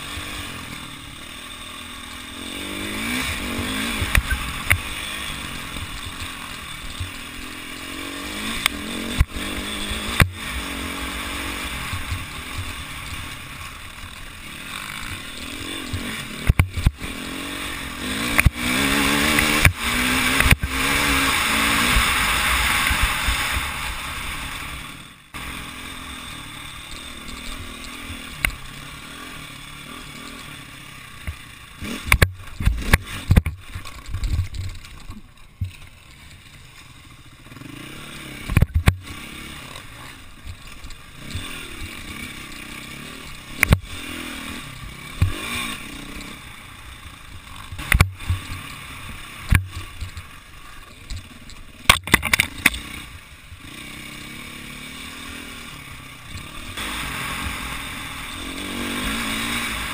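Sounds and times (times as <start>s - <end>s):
motorcycle engine revving: 0.0s - 59.9s
motorcycle knocks and clatter: 2.9s - 5.0s, 5.7s - 10.5s, 11.8s - 13.5s, 14.8s - 17.2s, 18.2s - 21.1s, 31.2s - 36.9s, 38.4s - 39.1s, 43.5s - 44.0s, 45.1s - 46.3s, 47.6s - 52.9s.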